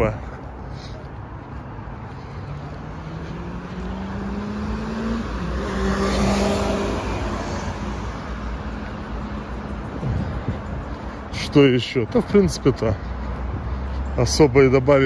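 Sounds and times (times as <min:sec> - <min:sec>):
car engine passing: 0:00.7 - 0:11.7.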